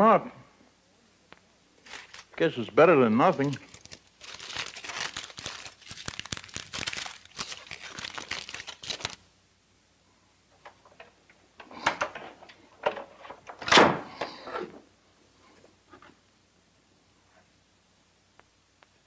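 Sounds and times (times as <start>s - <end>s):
foil packets crinkling: 1.8s - 9.3s.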